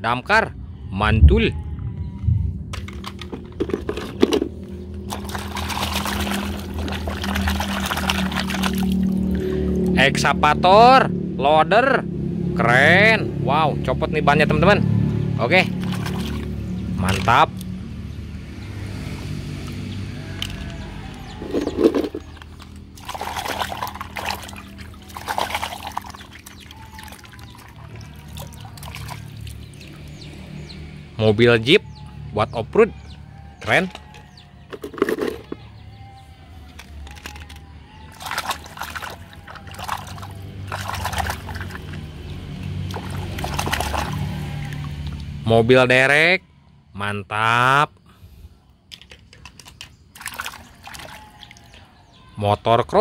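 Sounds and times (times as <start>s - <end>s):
muddy water splashing: 1.6s - 10.4s, 14.9s - 32.3s, 36.6s - 45.6s, 48.9s - 52.4s.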